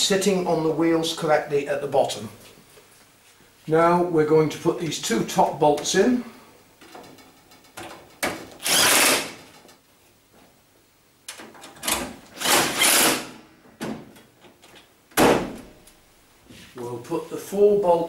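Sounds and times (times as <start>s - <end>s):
cordless drill driving bolts: 8.5s - 9.6s, 11.8s - 13.4s.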